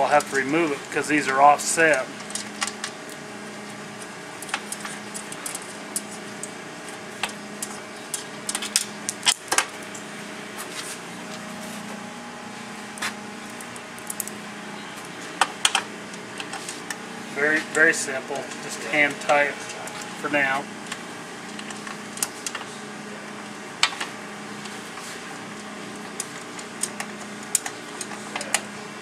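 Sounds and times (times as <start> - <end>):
low hum: 9.8 - 23.5.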